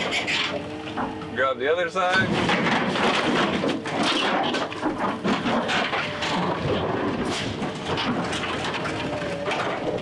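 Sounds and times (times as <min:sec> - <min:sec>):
sheet metal creaking and clanking: 0:02.1 - 0:10.0.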